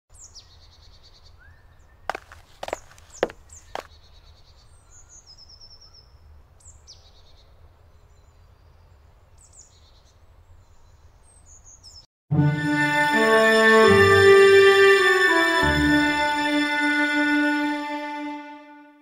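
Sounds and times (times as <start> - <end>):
songbirds chirping and trilling: 0.1 - 12.1
bowed string music: 12.3 - 19.0.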